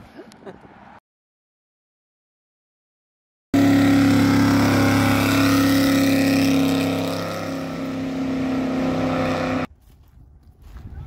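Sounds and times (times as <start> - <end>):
truck engine revving hard: 3.6 - 9.7.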